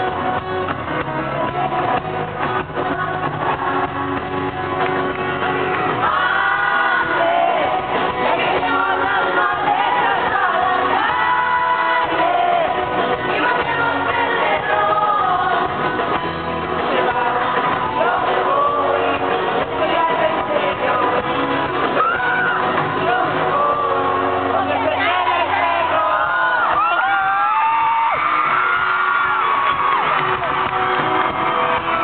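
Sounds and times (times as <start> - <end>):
live pop band playing: 0.0 - 32.0
person singing lead vocal: 1.1 - 4.2, 5.9 - 27.3.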